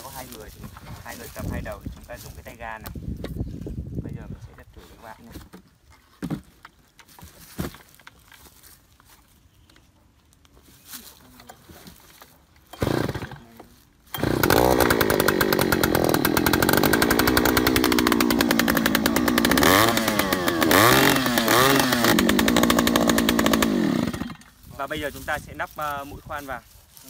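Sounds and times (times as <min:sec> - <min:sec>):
two-stroke engine running: 0:12.7 - 0:13.4, 0:14.1 - 0:24.5.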